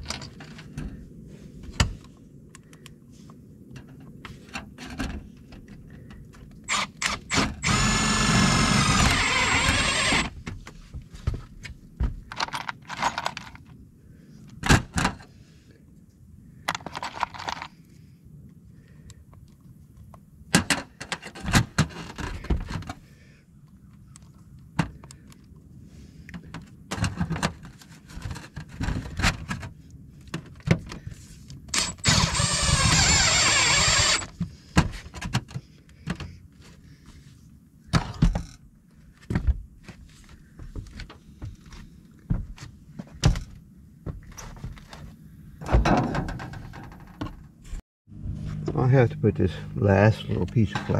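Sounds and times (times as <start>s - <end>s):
power drill whine: 6.7s - 10.3s, 31.7s - 34.3s.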